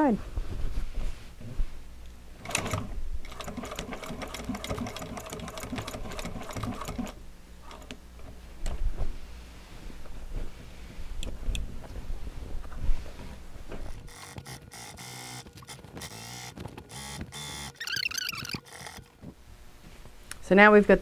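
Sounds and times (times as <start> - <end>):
sewing machine stitching: 2.4 - 7.9, 14.0 - 19.1.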